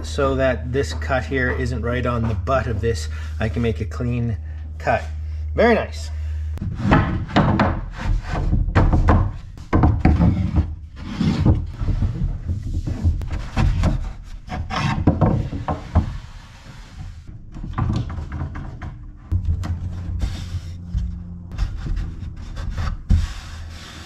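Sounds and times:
wooden boards scraping on workbench: 6.6 - 17.2, 20.0 - 24.0.

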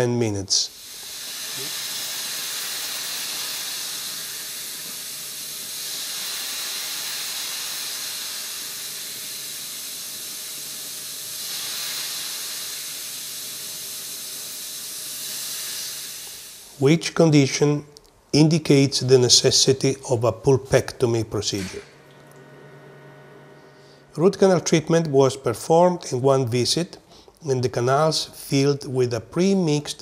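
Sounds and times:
dental suction hissing: 0.0 - 17.0.

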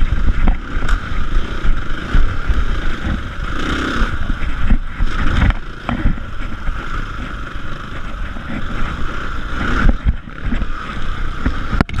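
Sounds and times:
dirt bike engine running: 0.0 - 12.0
wind buffeting microphone: 0.0 - 12.0
low knocks from rough ground: 4.2 - 9.0.

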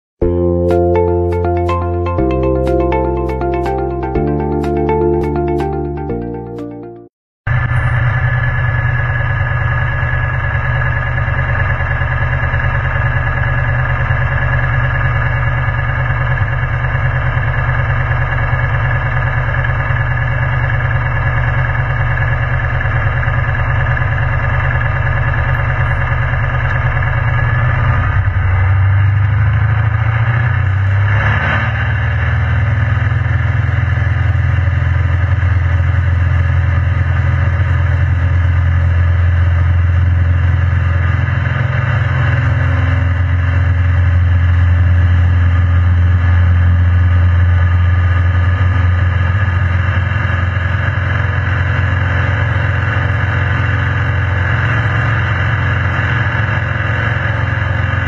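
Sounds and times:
light aircraft piston engine: 7.5 - 31.1, 31.9 - 58.0.

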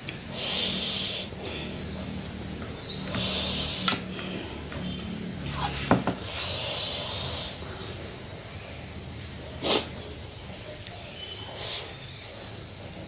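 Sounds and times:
high whistle-like tone: 1.5 - 3.9, 5.5 - 8.9, 11.1 - 13.0.

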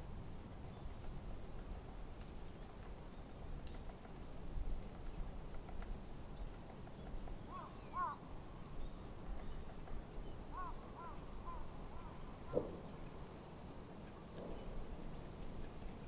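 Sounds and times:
crows cawing: 7.5 - 8.2, 10.5 - 12.6.

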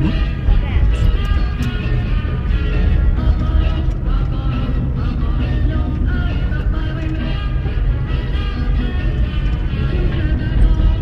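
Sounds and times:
low rumble: 0.0 - 8.0
background music: 0.0 - 11.0.

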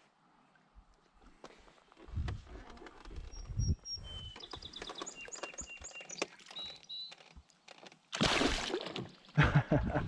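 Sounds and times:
faint birds chirping: 0.2 - 7.7
fish splashing water: 8.1 - 9.3.

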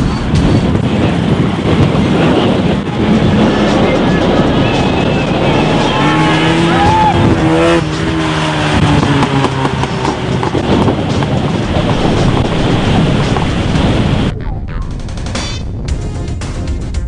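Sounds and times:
rally car passing at high revs: 0.7 - 14.3.

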